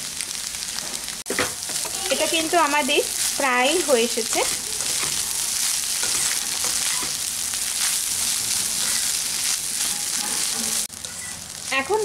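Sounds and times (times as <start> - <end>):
food sizzling in a pan: 0.0 - 12.0
spatula scraping a pan: 1.4 - 10.9.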